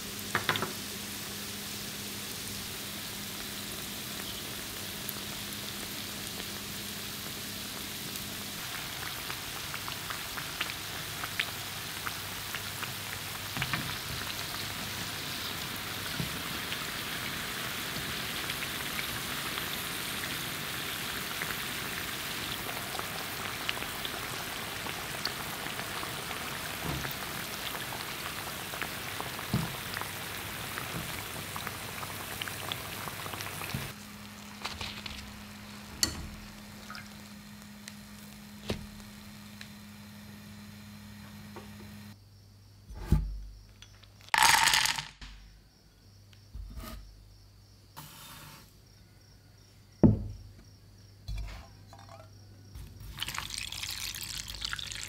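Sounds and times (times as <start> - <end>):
deep-frying oil sizzling: 0.0 - 41.4, 52.7 - 55.0.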